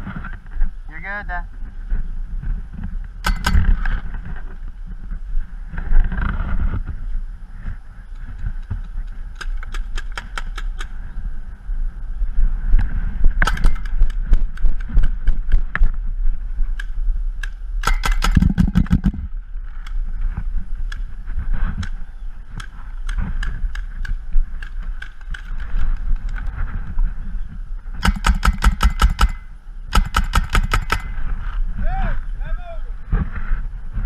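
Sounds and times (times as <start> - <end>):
paintball markers firing: 3.2 - 4.1, 8.1 - 11.0, 13.4 - 15.6, 16.7 - 20.0, 21.8 - 26.5, 28.0 - 31.4.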